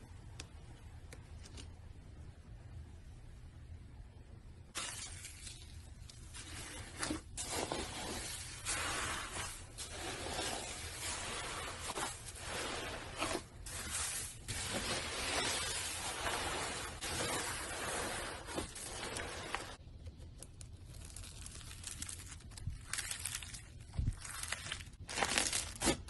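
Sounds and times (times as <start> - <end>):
crunchy slime crackling: 20.6 - 26.0.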